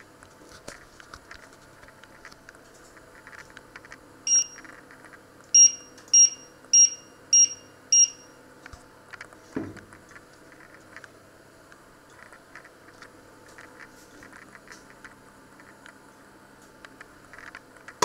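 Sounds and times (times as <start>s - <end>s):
hob touch control beeps: 4.3s - 4.6s, 5.6s - 8.3s.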